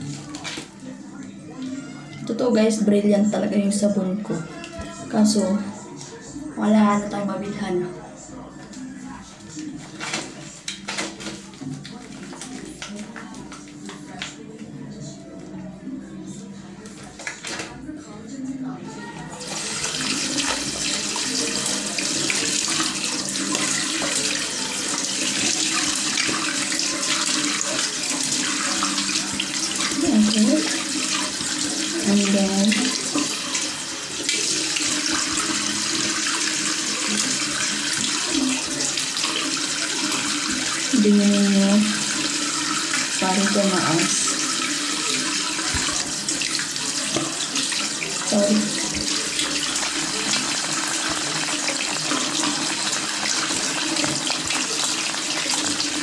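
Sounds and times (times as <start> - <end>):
tap water running into sink: 0.0 - 2.8, 8.6 - 14.4, 19.1 - 56.0
face being rinsed with hands: 19.3 - 56.0.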